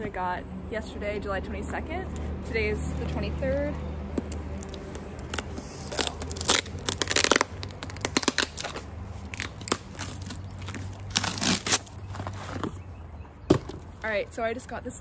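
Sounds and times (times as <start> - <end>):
tape tearing: 4.2 - 12.8
cardboard box tearing open: 4.6 - 12.0.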